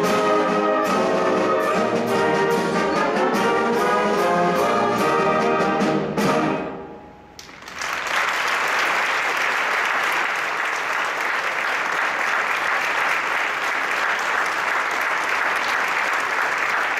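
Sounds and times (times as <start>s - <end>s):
audience applauding: 7.4s - 16.9s.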